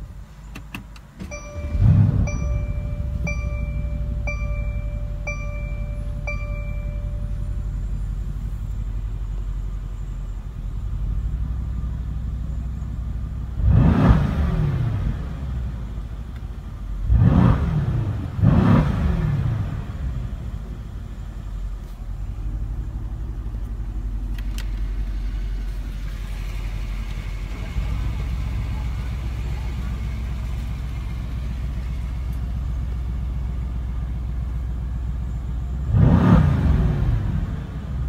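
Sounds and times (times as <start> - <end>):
car engine idling: 0.0 - 38.0
engine revving: 1.5 - 9.0, 13.4 - 16.2, 17.0 - 20.8, 35.8 - 38.0.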